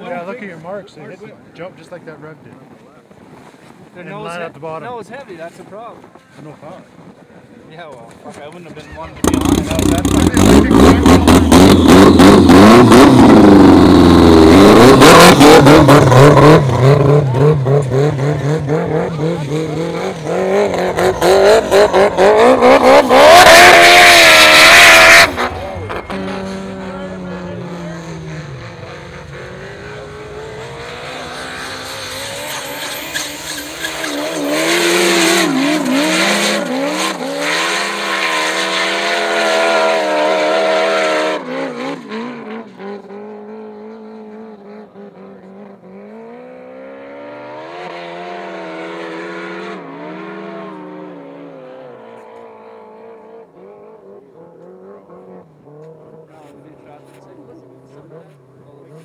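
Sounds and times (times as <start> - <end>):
snowmobile engine revving: 8.7 - 59.0.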